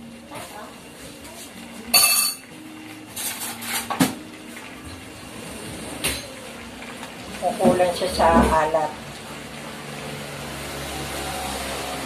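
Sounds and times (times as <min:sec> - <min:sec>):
metal utensils clinking on wok: 0:01.9 - 0:02.5.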